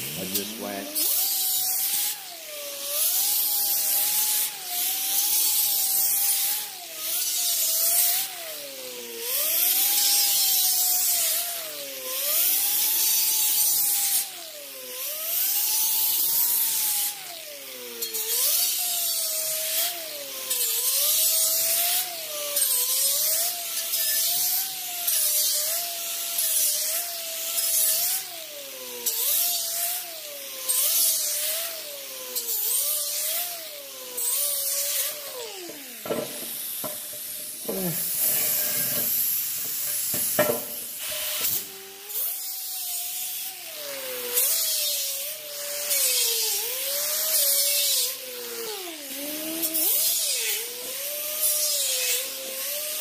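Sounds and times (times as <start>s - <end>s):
power tool whining: 0.0s - 53.0s
bristle disc scratching metal: 34.2s - 41.7s.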